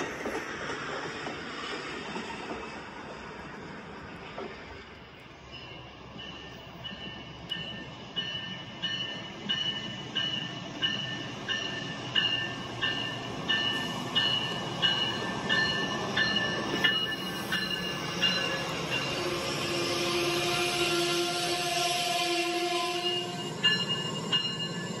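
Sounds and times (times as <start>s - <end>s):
toy train bell dinging: 5.5s - 19.3s, 23.0s - 25.0s.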